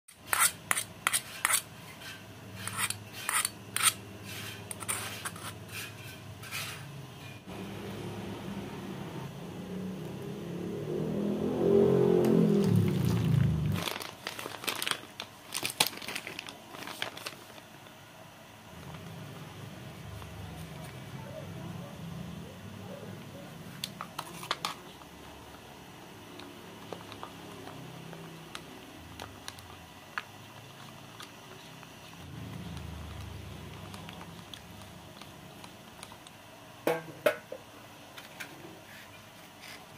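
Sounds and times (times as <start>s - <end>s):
metal utensil scraping saucepan: 0.2s - 7.4s.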